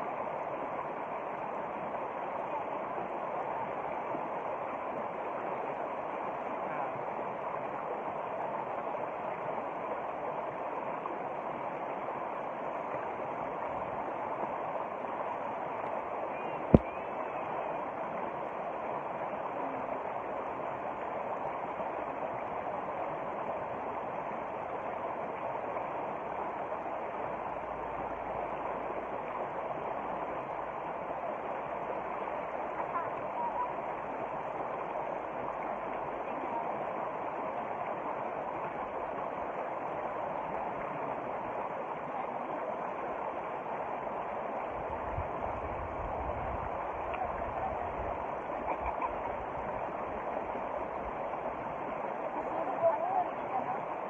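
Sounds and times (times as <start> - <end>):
stream running over rocks: 0.0 - 54.0
wind rumble on microphone: 44.5 - 54.0.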